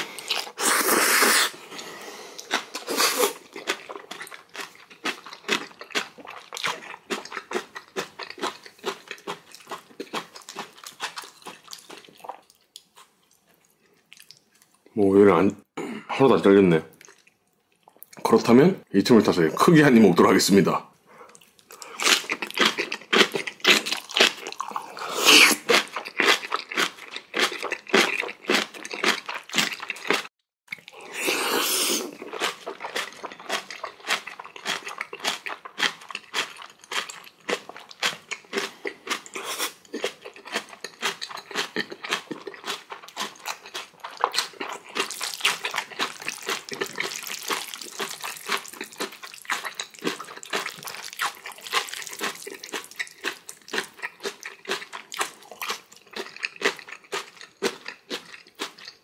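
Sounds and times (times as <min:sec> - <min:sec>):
wet chewing and crunching: 0:00.0 - 0:14.9, 0:16.9 - 0:18.3, 0:21.3 - 0:59.0.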